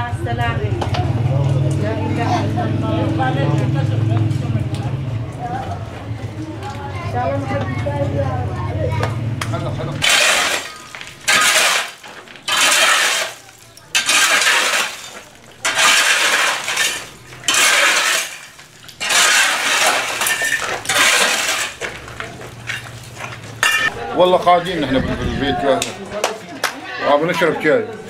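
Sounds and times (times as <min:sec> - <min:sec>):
debris clinking: 0:10.0 - 0:24.2
shovel scraping concrete floor: 0:10.0 - 0:25.9.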